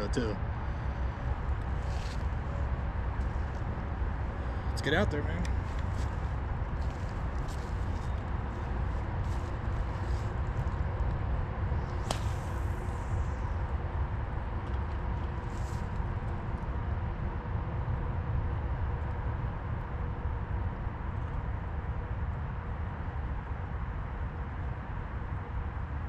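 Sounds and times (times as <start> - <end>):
steady low rumble: 0.0 - 26.0
fishing rod swish: 11.9 - 13.0
fishing line hissing out: 12.0 - 13.4.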